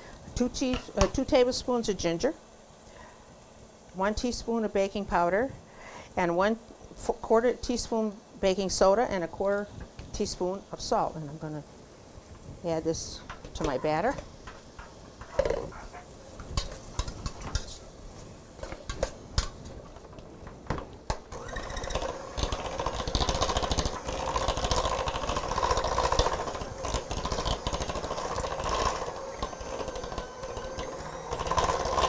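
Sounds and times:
electric mixer running: 21.1s - 32.0s.

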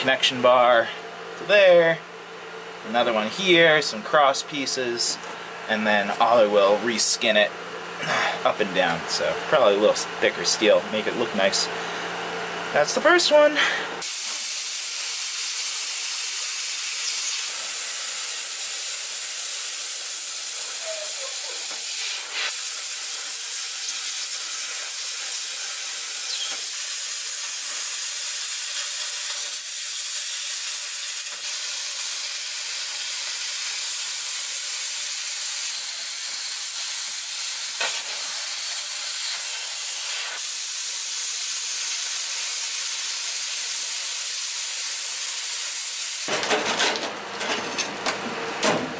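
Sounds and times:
plasma cutter hissing: 14.0s - 46.3s.

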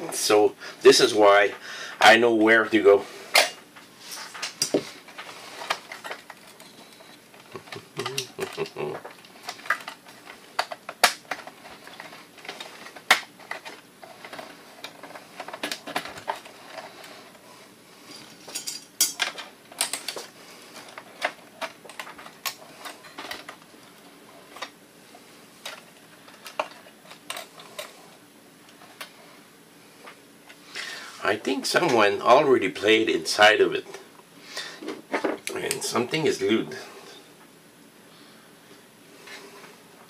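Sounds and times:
small parts clicking and rattling: 4.2s - 17.4s, 18.1s - 24.8s, 25.6s - 28.0s.

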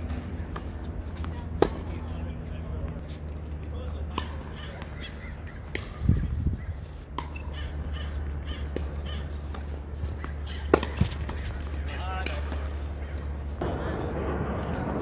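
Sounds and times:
tennis balls struck by racquets: 0.0s - 6.1s, 6.8s - 13.6s
crow cawing: 7.5s - 9.4s.

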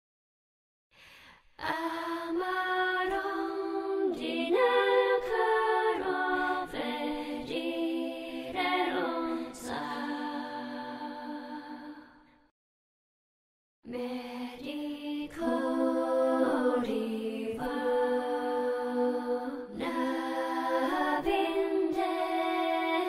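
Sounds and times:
music with singing voices: 13.9s - 23.0s.

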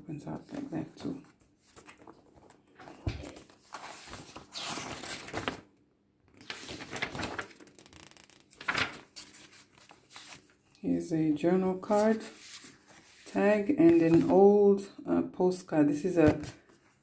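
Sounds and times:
paper pages rustling: 0.4s - 5.7s, 6.3s - 10.8s, 11.7s - 14.5s.

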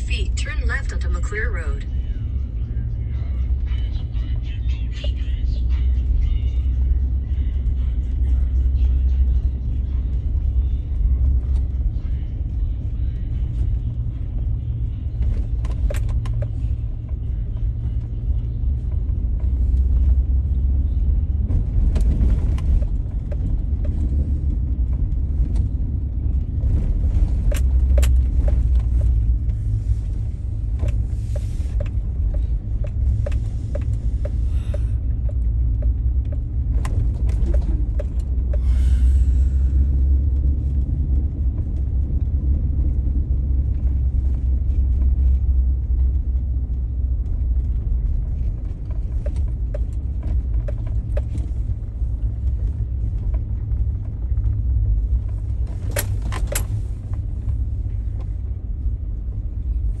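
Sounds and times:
car engine and tyre rumble: 0.0s - 60.0s.

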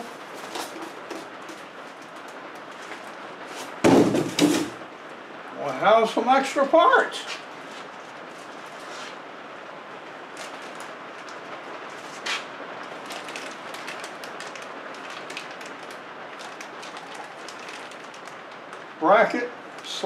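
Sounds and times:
rain hiss: 0.0s - 20.0s
plastic bags crinkling: 10.3s - 18.9s.

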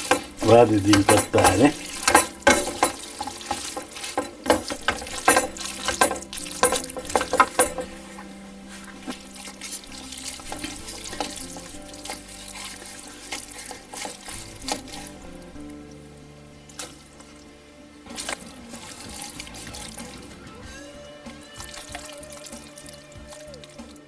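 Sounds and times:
wooden spoon scraping metal pan: 0.0s - 15.4s
wet pasta tossing: 0.0s - 16.0s, 18.1s - 20.6s, 21.5s - 24.0s.

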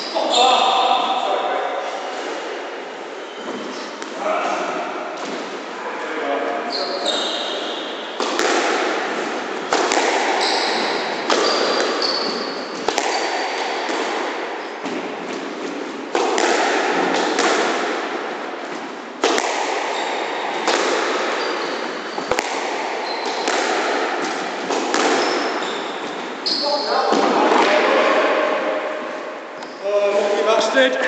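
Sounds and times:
shoes squeaking on wooden floor: 3.2s - 4.5s, 6.6s - 8.4s, 9.1s - 13.6s, 21.3s - 22.4s, 23.0s - 23.6s, 24.2s - 27.2s
squash ball hits: 7.4s - 29.2s.

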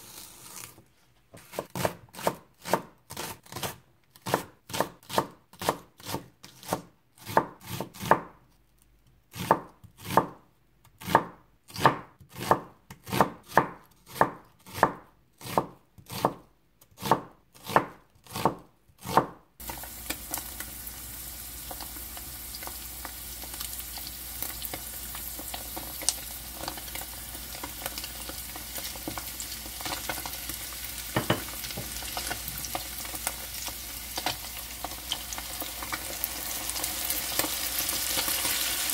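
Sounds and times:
knife chopping on cutting board: 1.3s - 8.3s, 9.4s - 10.4s, 11.0s - 16.4s, 17.0s - 19.8s, 31.1s - 32.7s
tofu sizzling in frying pan: 19.6s - 38.9s.

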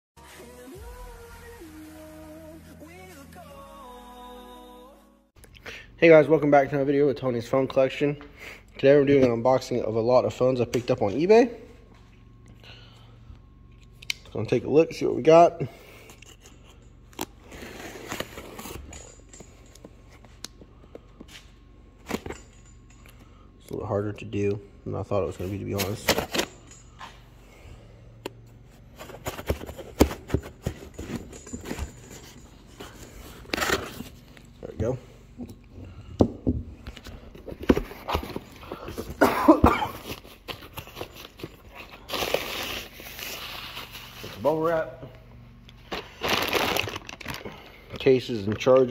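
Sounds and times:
person coughing: 39.0s - 40.2s.

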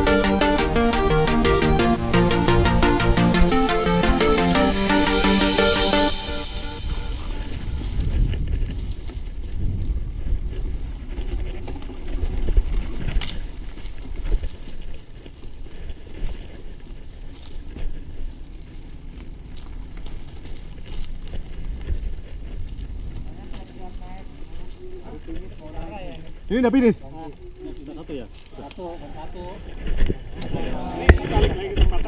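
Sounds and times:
bike riding rumble: 0.0s - 32.0s
wind on microphone: 6.4s - 14.8s
bike knocking and rattling: 7.8s - 26.4s, 27.1s - 32.0s.

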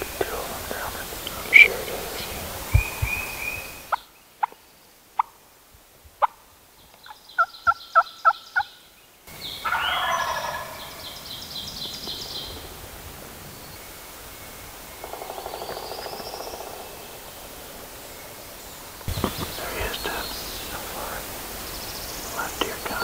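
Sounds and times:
songbirds singing: 0.0s - 5.4s, 6.2s - 23.0s
turkey gobbling: 9.6s - 11.0s.

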